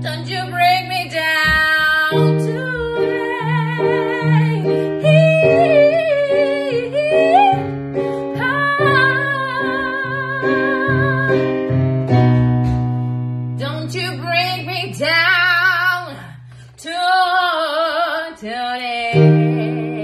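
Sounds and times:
woman singing with vibrato: 0.0s - 11.8s, 13.6s - 20.0s.

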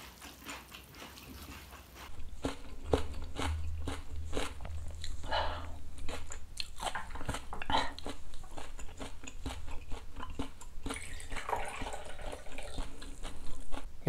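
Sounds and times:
mouth chewing food: 0.0s - 13.9s
liquid pouring into shot glass: 10.9s - 12.8s.

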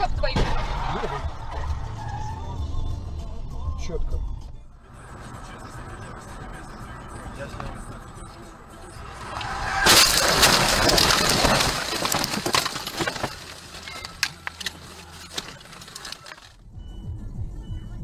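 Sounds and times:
car crashing into bushes: 9.2s - 16.6s
branches snapping against car: 9.8s - 16.6s.

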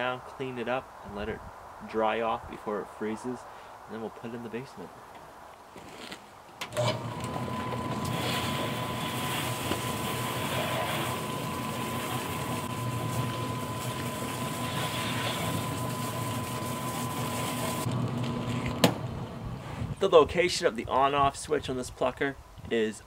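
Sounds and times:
electric motor humming and whining: 6.7s - 19.6s.

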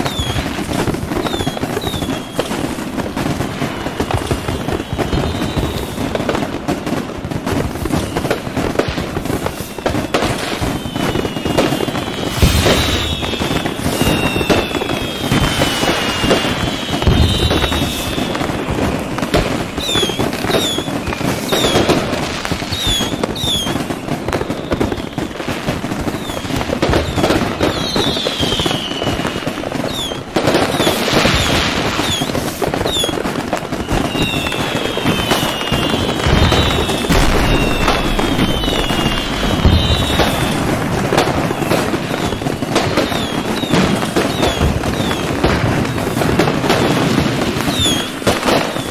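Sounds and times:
fireworks popping and banging: 0.0s - 48.9s
whistling fireworks: 0.0s - 48.9s.

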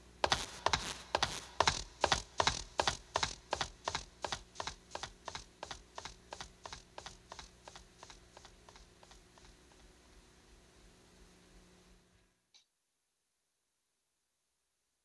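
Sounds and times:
sharp taps: 0.2s - 9.6s.

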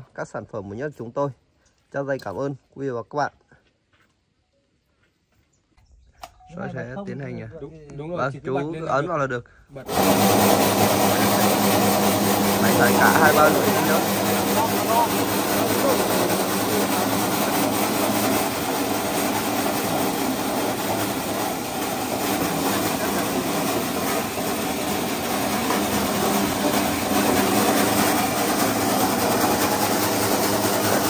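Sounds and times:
fish-slicing machine running: 9.9s - 31.0s.

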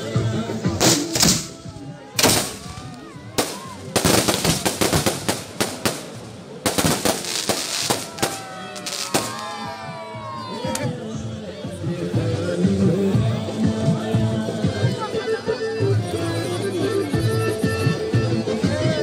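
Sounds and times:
fireworks bangs and crackling: 0.7s - 1.6s, 2.2s - 9.8s.

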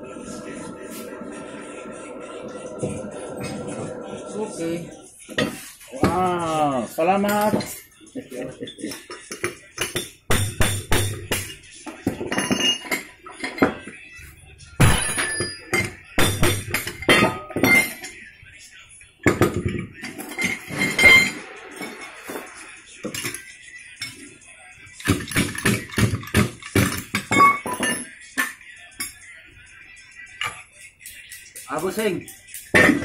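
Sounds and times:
steel parts clinking and knocking: 8.8s - 13.9s, 14.8s - 18.2s, 25.0s - 29.2s.

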